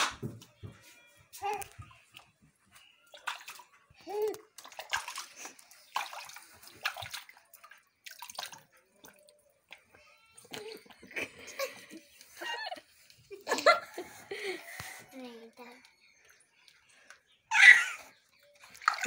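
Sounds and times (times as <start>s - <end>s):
water splashing in plastic bucket: 3.1s - 9.8s, 18.6s - 19.0s
baby vocal sound: 17.5s - 18.1s.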